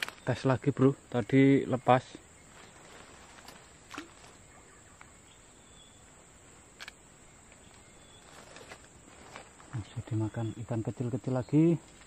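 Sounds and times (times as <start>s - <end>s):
small splash on water: 3.9s - 4.4s.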